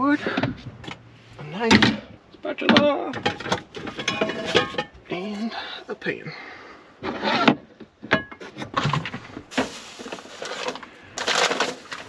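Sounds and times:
metal frying pan clattering: 3.2 - 5.0
rustling and shuffling: 7.8 - 12.0.

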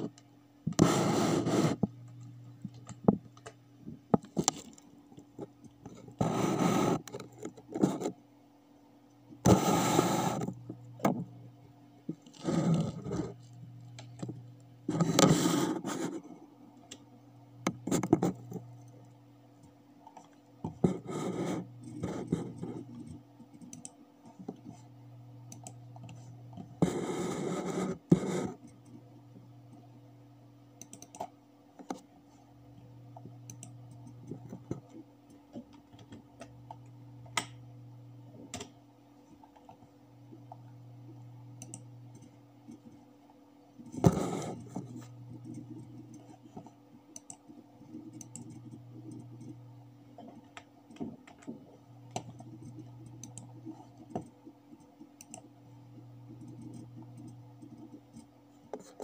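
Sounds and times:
steady low hum: 0.0 - 59.0
mouse and keyboard clicks: 30.8 - 32.0, 41.6 - 43.0, 43.9 - 49.6, 50.2 - 55.5.

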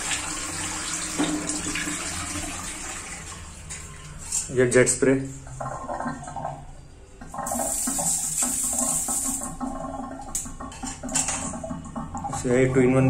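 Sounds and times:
hand spray jetting water: 7.4 - 9.6.

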